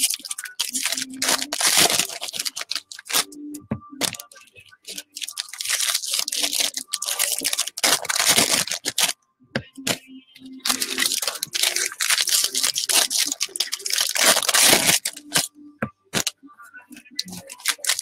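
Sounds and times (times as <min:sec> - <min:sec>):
foil wrappers tearing and crinkling: 0:00.0 - 0:03.3, 0:04.9 - 0:09.1, 0:10.6 - 0:15.5, 0:17.2 - 0:18.0.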